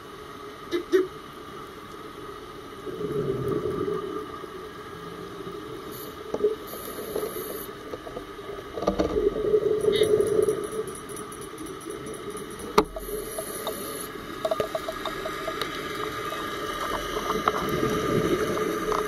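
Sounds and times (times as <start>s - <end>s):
underwater breath bubbles rumbling: 14.8s - 19.0s.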